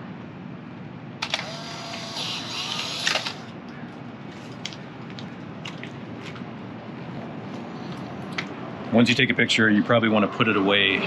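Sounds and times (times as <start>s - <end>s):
camera motor whirring: 1.2s - 3.5s
camera shutter click: 1.2s - 3.5s.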